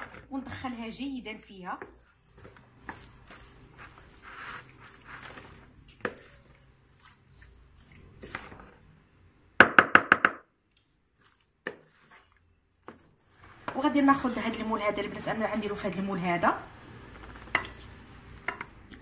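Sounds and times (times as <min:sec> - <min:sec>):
pasta tossed in plastic bowl: 0:00.0 - 0:08.8, 0:11.2 - 0:14.6.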